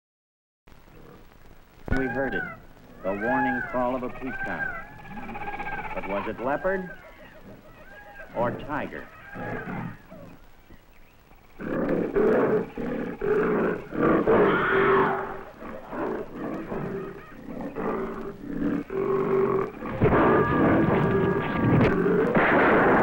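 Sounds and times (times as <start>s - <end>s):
tiger growling and roaring: 2.0s - 10.4s, 11.6s - 23.0s.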